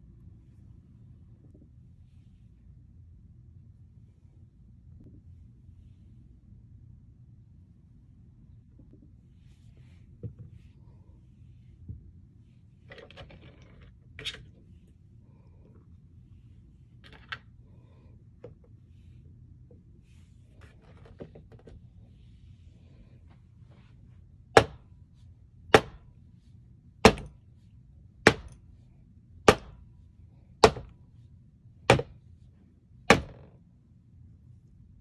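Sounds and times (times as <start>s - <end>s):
clay pieces thudding on surface: 27.0s - 27.3s, 28.3s - 28.6s, 30.6s - 30.9s, 33.1s - 33.5s.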